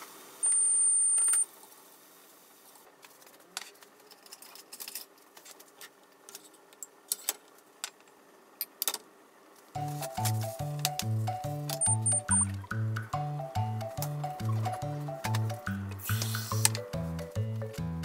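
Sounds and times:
high-pitched beep: 0.4s - 1.4s, 11.8s - 12.6s.

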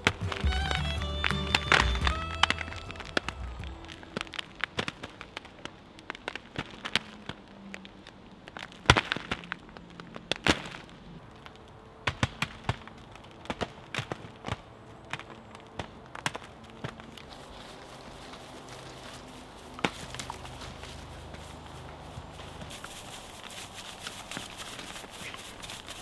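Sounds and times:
clay lumps cracking and knocking: 0.0s - 26.0s.

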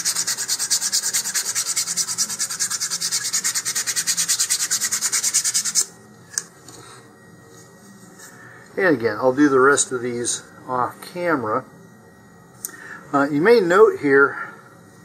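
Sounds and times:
sandpaper rubbing on wood: 0.0s - 5.8s.

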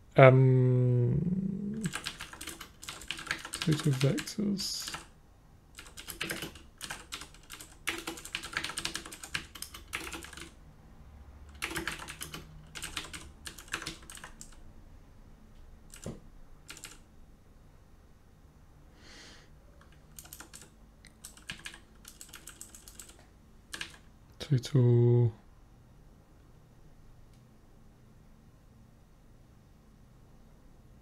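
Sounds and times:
typing on a computer keyboard: 1.8s - 5.1s, 5.7s - 10.6s, 11.5s - 14.6s, 15.9s - 17.0s, 19.8s - 24.1s.

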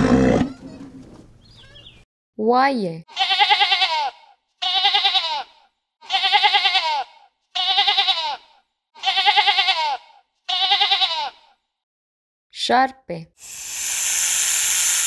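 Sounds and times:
sheep bleating: 3.1s - 11.6s.

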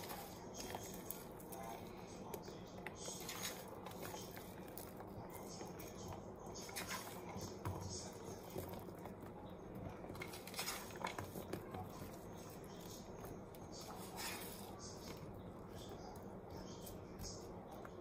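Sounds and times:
onion pieces pattering onto dough: 0.0s - 18.0s
fingers scraping a plate: 10.1s - 15.4s.

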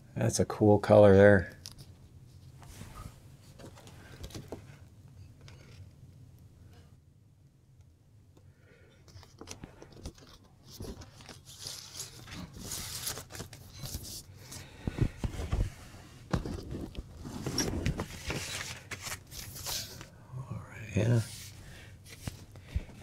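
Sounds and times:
record sleeves rustling and crinkling: 1.8s - 4.8s, 9.1s - 20.2s, 20.8s - 23.0s.

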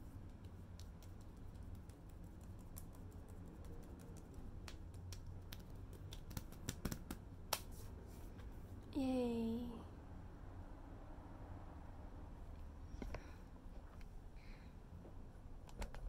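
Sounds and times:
fingers patting skin: 0.0s - 7.7s
low steady hum: 0.0s - 16.0s.

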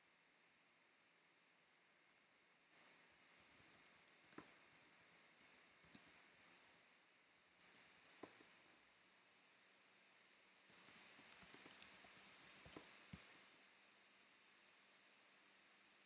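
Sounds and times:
faint keyboard typing: 2.7s - 6.7s, 7.6s - 8.5s, 10.7s - 13.3s.

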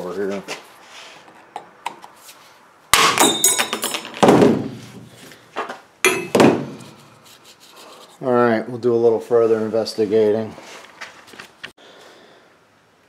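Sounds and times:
hammer striking steel chisel: 6.1s - 7.1s.

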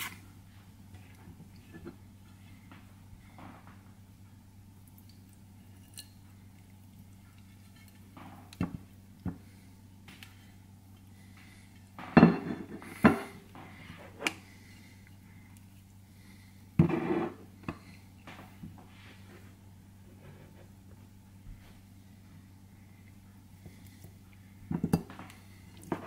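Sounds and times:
plates clattering: 12.0s - 14.0s.

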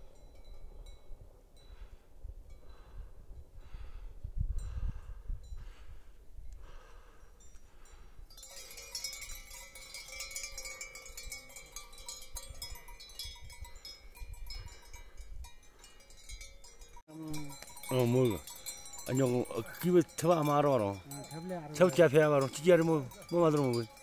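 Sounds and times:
neck bells clanking and jingling: 7.4s - 24.0s.

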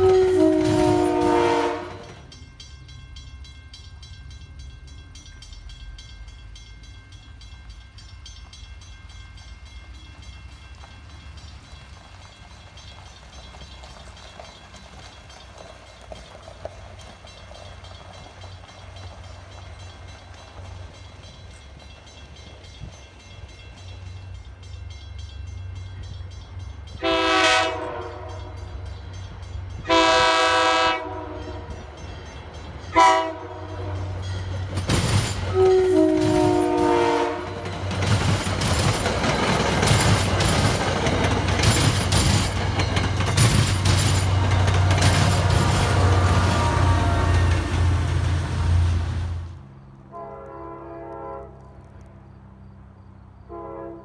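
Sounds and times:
train horn blasts: 0.0s - 2.3s, 27.0s - 28.8s, 29.8s - 31.9s, 32.9s - 34.3s, 35.5s - 37.7s, 44.8s - 51.8s, 53.4s - 54.0s
train wheels and rail clatter: 0.0s - 53.4s.

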